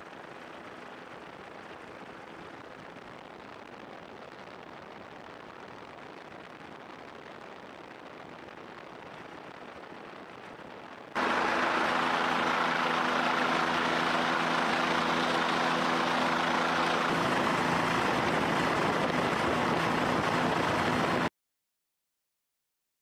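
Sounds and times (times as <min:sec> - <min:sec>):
helicopter engine and rotors: 0:11.2 - 0:21.3
low hum of steady tones: 0:11.2 - 0:21.3
rushing noise: 0:11.2 - 0:21.3.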